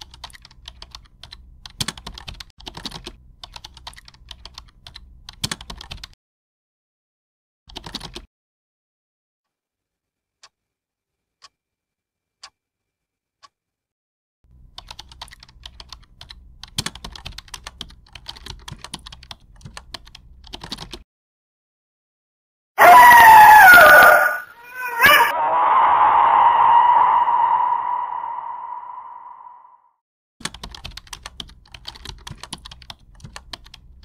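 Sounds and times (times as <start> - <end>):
typing on a laptop keyboard: 0.0 - 6.2, 7.7 - 8.3, 14.6 - 21.0, 30.4 - 34.0
loud sound with falling pitch: 24.7 - 29.8
low hum: 25.3 - 29.8.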